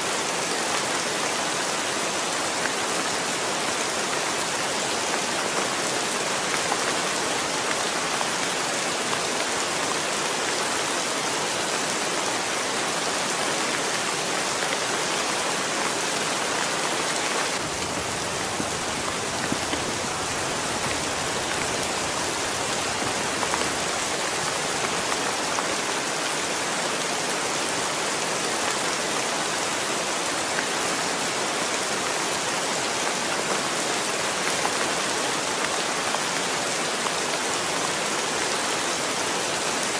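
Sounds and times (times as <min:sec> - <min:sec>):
heavy rain on concrete: 0:00.0 - 0:39.9.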